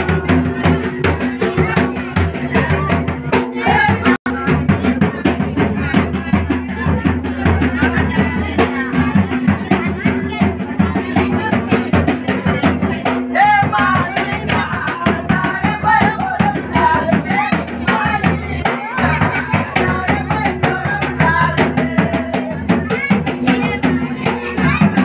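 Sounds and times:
quick steady drumbeat: 0:00.0 - 0:25.0
person singing: 0:12.8 - 0:25.0.

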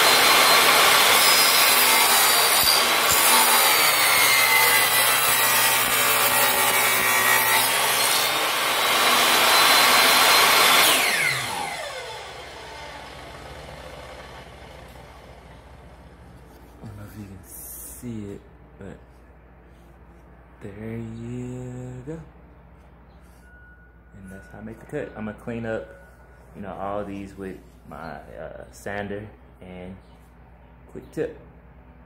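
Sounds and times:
saw motor winding down: 0:00.0 - 0:16.2
table saw cutting wood: 0:00.0 - 0:16.6.

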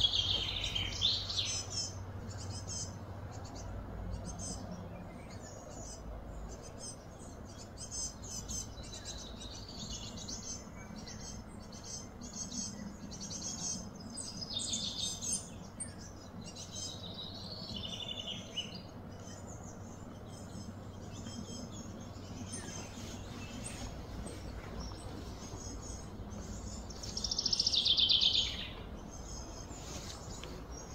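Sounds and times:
songbirds chirping: 0:00.0 - 0:30.9
steady low hum: 0:00.0 - 0:30.9.

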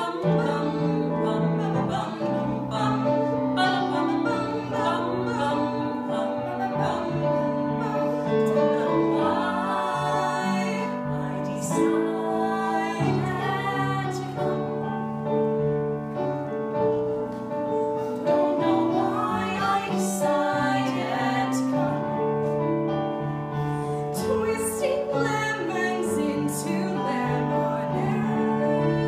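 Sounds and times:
woman singing: 0:00.0 - 0:14.9, 0:18.3 - 0:22.5, 0:24.1 - 0:29.0
piano playing held chords: 0:00.0 - 0:29.0.

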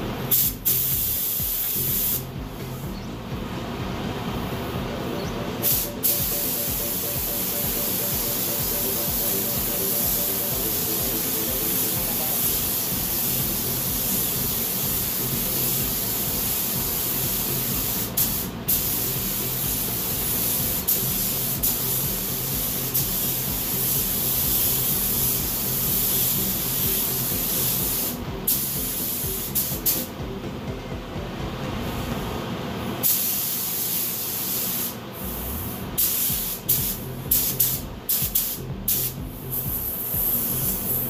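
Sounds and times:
paint spray gun hissing: 0:00.3 - 0:02.8, 0:05.6 - 0:30.1, 0:33.0 - 0:35.4, 0:36.0 - 0:41.0.

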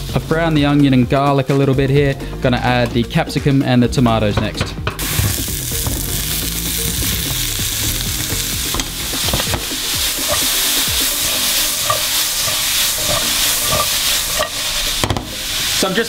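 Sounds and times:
vegetables sizzling in frying pan: 0:05.0 - 0:16.0
wooden spoon scraping pan: 0:07.9 - 0:16.0
spoon knocking against pan: 0:08.7 - 0:15.4.

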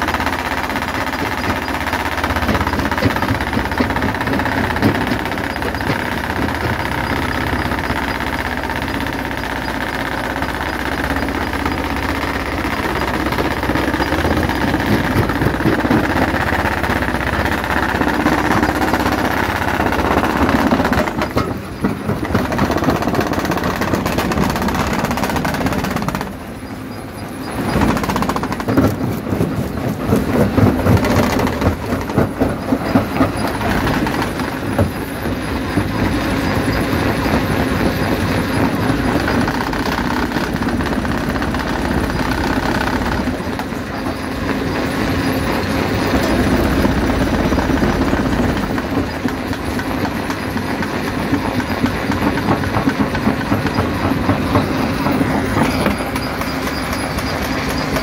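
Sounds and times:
machine rumble: 0:00.0 - 0:58.0
rocks cracking in jaw crusher: 0:27.6 - 0:43.8.

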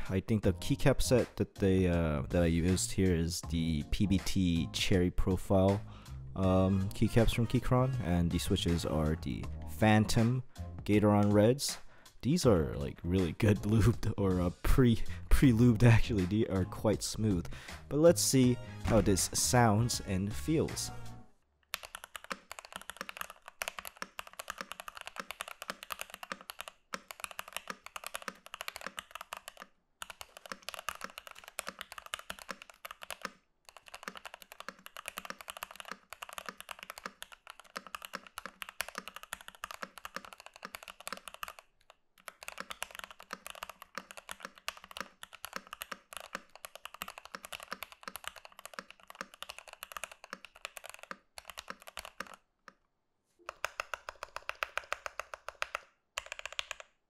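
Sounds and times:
typing on mechanical keyboard: 0:21.7 - 0:52.8, 0:53.5 - 0:57.0.

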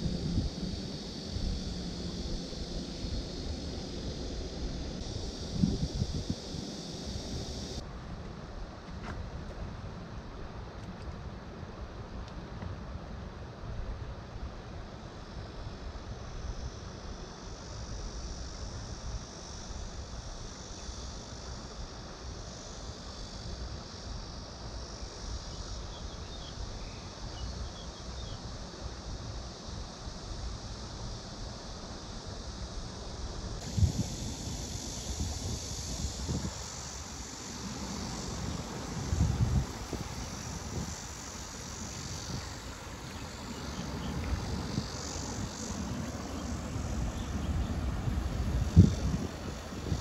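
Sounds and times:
high insect drone: 0:00.0 - 0:09.5, 0:11.5 - 0:50.0
wind buffeting microphone: 0:33.6 - 0:50.0.

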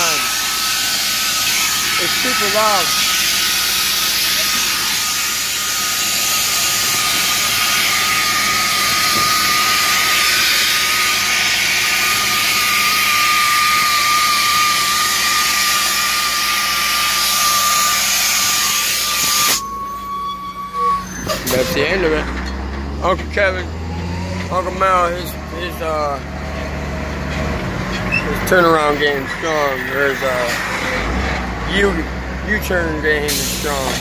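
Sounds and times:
paint spray hissing with high whine: 0:00.0 - 0:19.6, 0:33.3 - 0:34.0.

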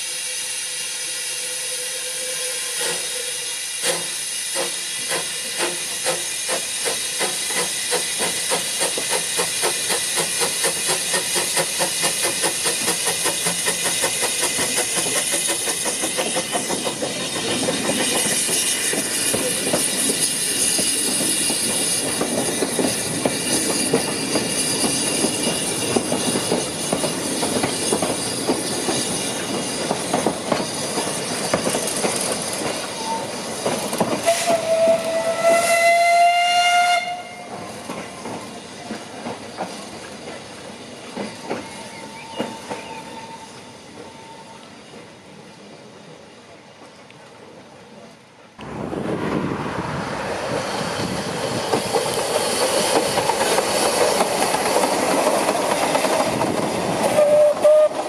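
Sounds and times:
steam whistle: 0:00.0 - 0:04.7, 0:34.2 - 0:37.6, 0:57.0 - 0:58.0
steam hissing: 0:00.0 - 0:46.4, 0:49.6 - 0:58.0
steam locomotive chuffing: 0:00.0 - 0:47.0, 0:50.1 - 0:58.0.

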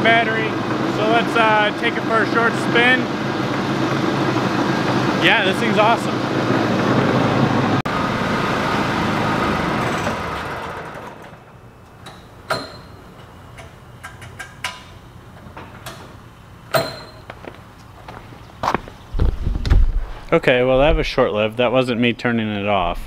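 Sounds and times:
small gasoline engine running: 0:00.0 - 0:11.6.

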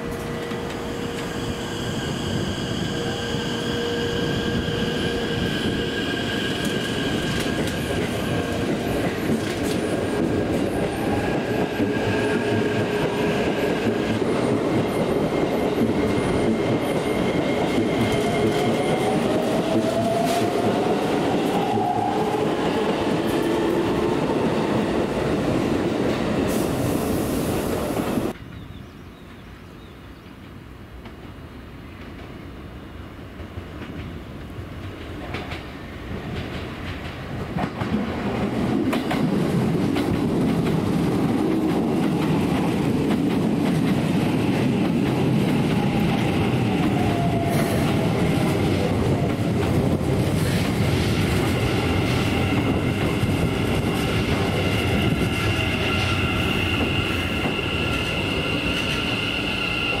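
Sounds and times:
rail noise: 0:00.0 - 1:00.0
high-pitched brake squeal: 0:55.4 - 1:00.0.

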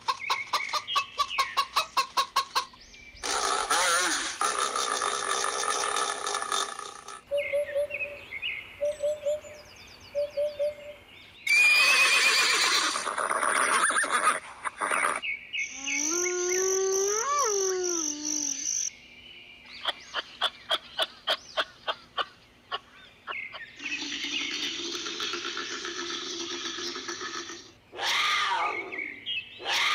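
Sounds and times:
loud animal calls: 0:03.2 - 0:07.3, 0:11.5 - 0:15.2, 0:23.8 - 0:29.9
horse whinnying: 0:11.5 - 0:15.2.

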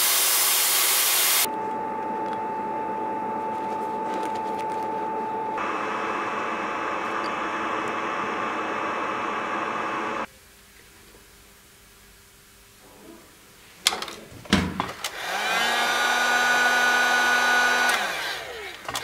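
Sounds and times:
machine hiss and whine: 0:00.0 - 0:10.3.

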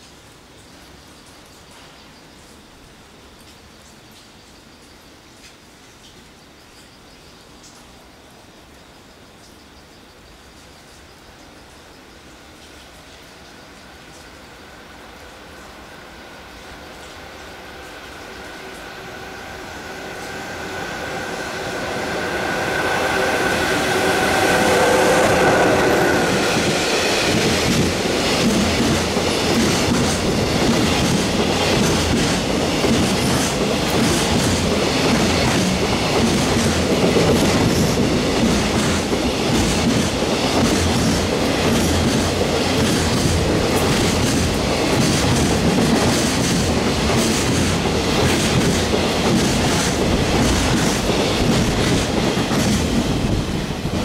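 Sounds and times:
electric locomotive passing: 0:13.7 - 0:54.0
train wheels clacking over rail joints: 0:19.9 - 0:54.0.

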